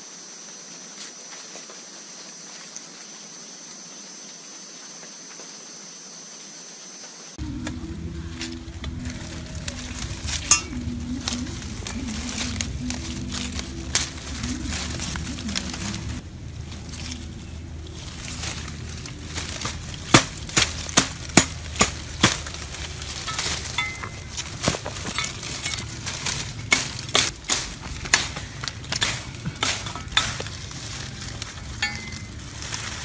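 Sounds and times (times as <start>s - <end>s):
leaves rustling: 0.0s - 33.0s
twigs crackling and snapping: 7.4s - 33.0s.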